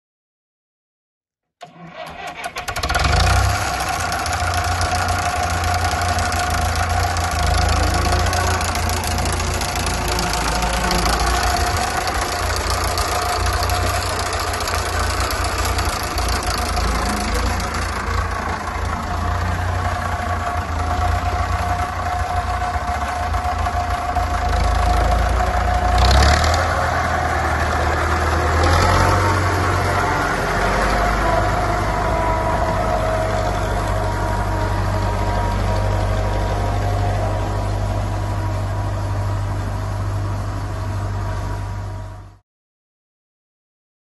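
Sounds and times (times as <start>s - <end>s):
tractor engine starting and running: 1.6s - 42.4s.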